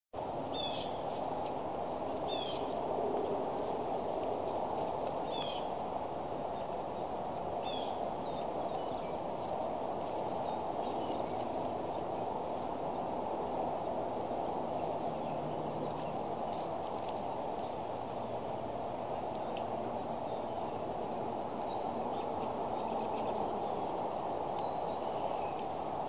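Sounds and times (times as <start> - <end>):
steady rushing noise: 0.2 - 26.0
bird chirping: 2.3 - 2.8.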